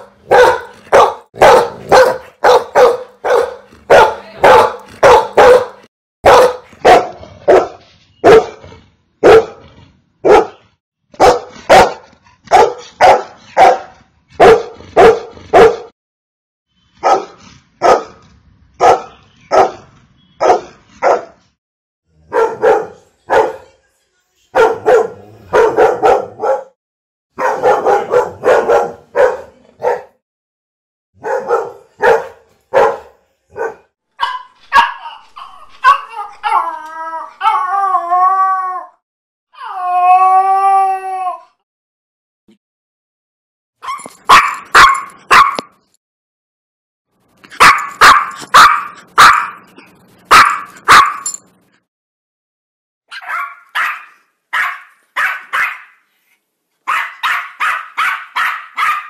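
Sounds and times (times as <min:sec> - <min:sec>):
dog barking: 0:00.0 - 0:08.6, 0:09.2 - 0:09.6, 0:10.2 - 0:10.6, 0:11.2 - 0:15.9, 0:17.0 - 0:18.2, 0:18.8 - 0:21.4, 0:22.2 - 0:23.7, 0:24.6 - 0:26.8, 0:27.4 - 0:30.2, 0:31.2 - 0:35.1, 0:43.8 - 0:45.7, 0:47.6 - 0:49.6, 0:50.3 - 0:51.3, 0:53.1 - 0:56.0, 0:56.8 - 0:59.0.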